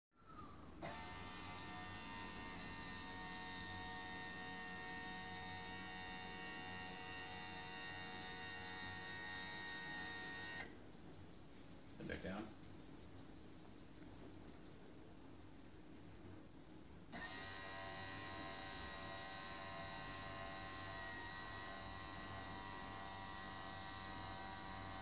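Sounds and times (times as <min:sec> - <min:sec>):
electric motor whining: 0:00.8 - 0:10.7, 0:17.1 - 0:25.0.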